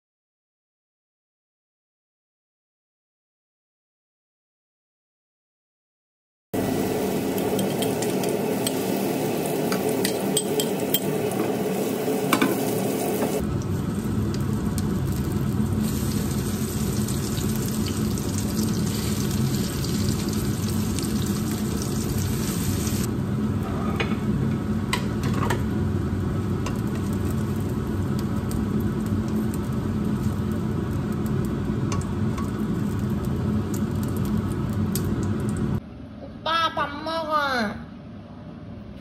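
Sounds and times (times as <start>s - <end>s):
pancakes sizzling in oil: 6.6s - 23.1s, 26.5s - 35.6s.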